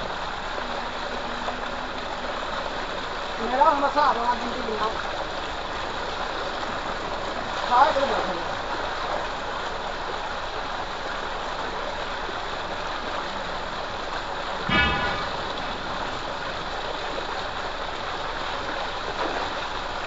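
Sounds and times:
water gushing into a tank: 0.0s - 20.0s
short pitched tone: 14.7s - 16.2s.

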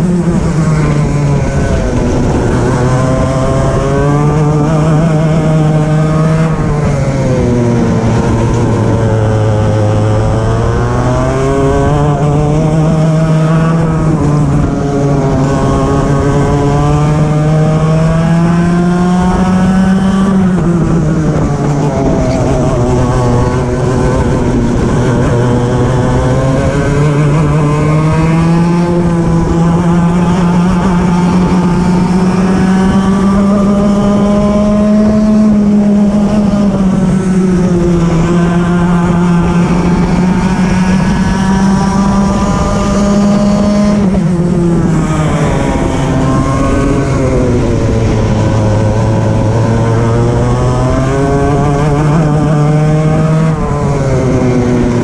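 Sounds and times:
racing kart engine at full throttle: 0.0s - 55.0s.

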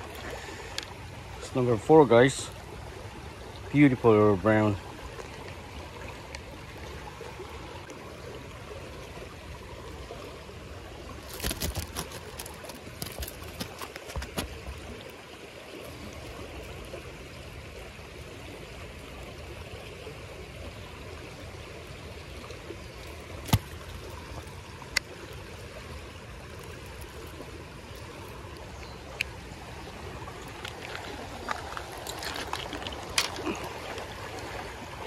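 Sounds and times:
creek running over rocks: 0.0s - 35.0s.

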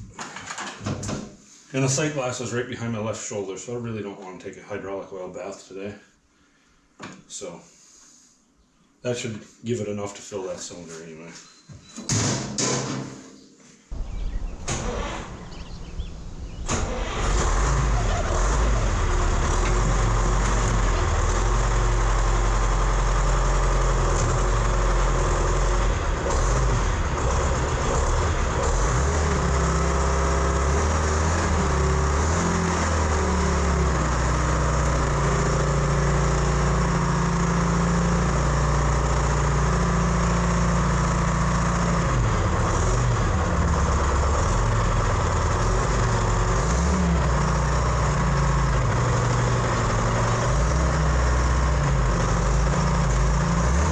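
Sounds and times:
wheel loader engine running: 13.9s - 53.9s.

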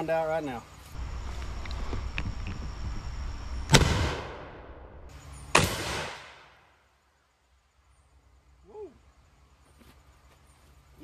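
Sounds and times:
shotgun blasts: 3.7s - 4.8s, 5.5s - 6.6s.

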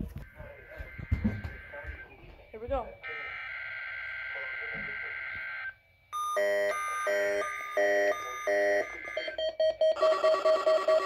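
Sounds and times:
electronic alert beeps: 6.2s - 11.0s
fast repeating beeps: 6.2s - 11.0s.

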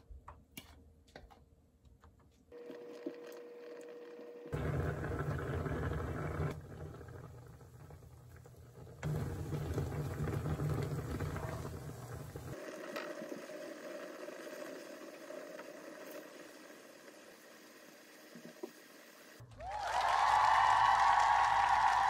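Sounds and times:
sauce bubbling in frying pan: 4.4s - 19.4s.

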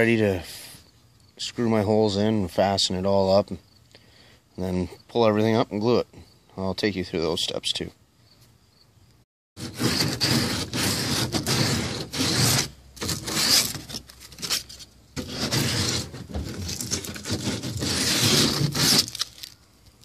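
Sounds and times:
sandpaper scratching plastic: 9.6s - 19.6s.

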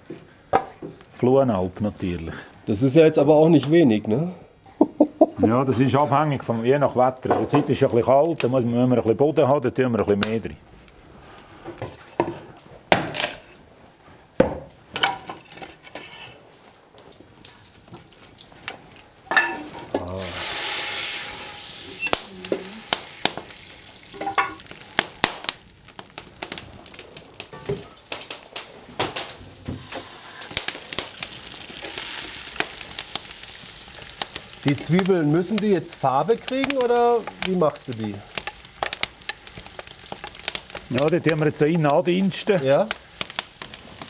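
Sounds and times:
clicks and knocks from fire: 10.0s - 44.0s
butter sizzling in a pot: 15.0s - 28.6s, 29.2s - 44.0s.

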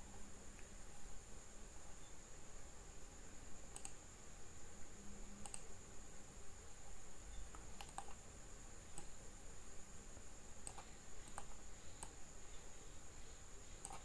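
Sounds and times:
faint steady hiss: 0.0s - 14.0s
thin high whine: 0.0s - 14.0s
computer input clicks: 5.4s - 5.7s, 7.8s - 8.2s.

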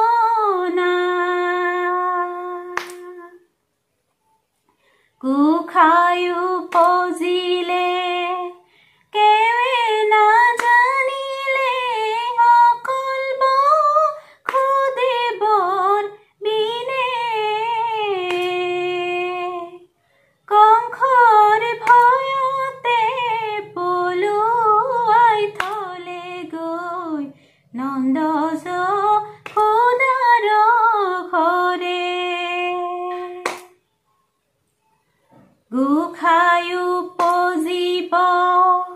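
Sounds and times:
woman singing devotional chant: 0.0s - 3.5s, 5.2s - 33.8s, 35.7s - 38.9s
hand claps: 2.7s - 3.2s, 6.6s - 7.2s, 10.4s - 11.1s, 14.4s - 14.9s, 18.2s - 18.7s, 21.7s - 22.3s, 25.5s - 26.0s, 29.4s - 30.1s, 33.1s - 33.8s, 37.1s - 37.6s.

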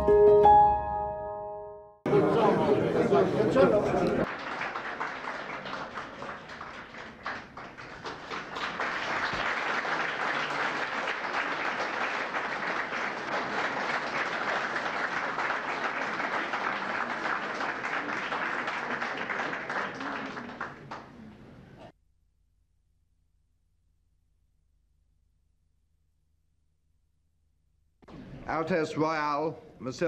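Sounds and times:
crowd applauding: 2.1s - 21.4s.

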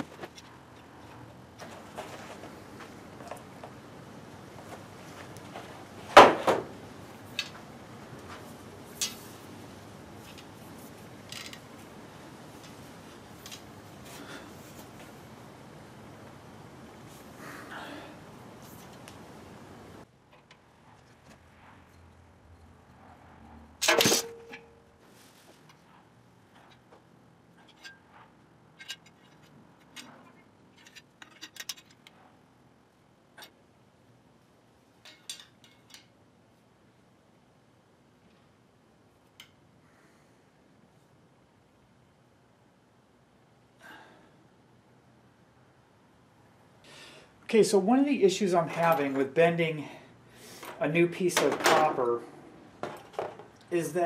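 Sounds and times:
metallic clicks of copper tubing: 39.3s - 39.6s.

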